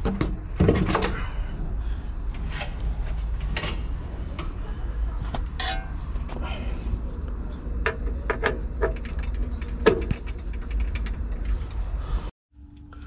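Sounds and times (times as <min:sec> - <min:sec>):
sharp clicks and knocks: 0:07.8 - 0:11.8.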